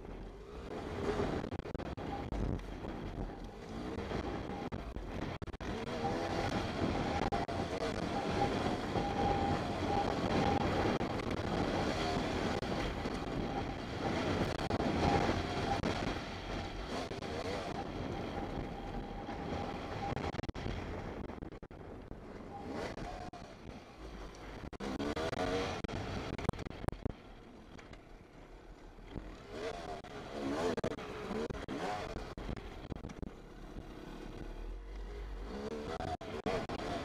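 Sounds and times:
dirt bike engine revving: 24.7 - 26.3, 29.2 - 32.7.

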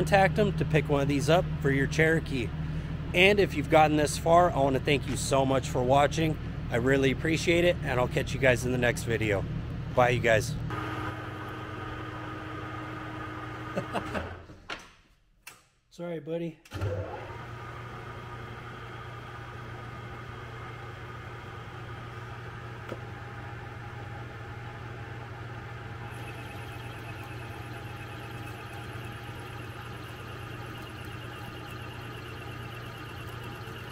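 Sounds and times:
metal lathe humming: 26.0 - 33.9.

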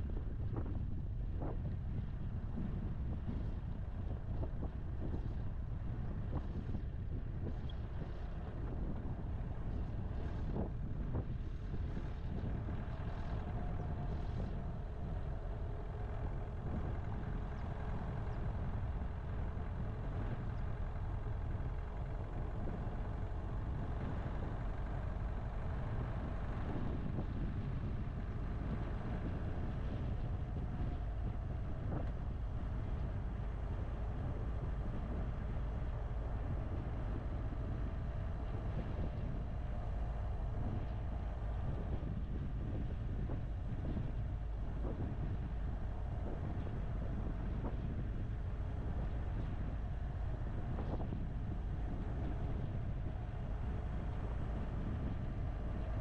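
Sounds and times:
tyres rumbling on dirt road: 0.0 - 56.0
wind on microphone: 0.0 - 56.0.

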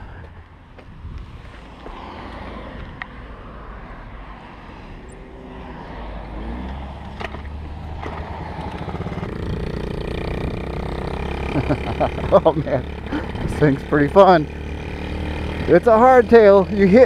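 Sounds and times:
minibike engine revving: 4.8 - 17.0.

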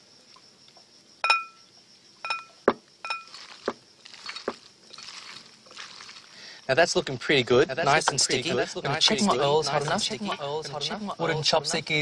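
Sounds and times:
glass bowl clinking: 1.2 - 1.6, 2.2 - 6.3
hand squelching thick batter: 3.3 - 6.6.

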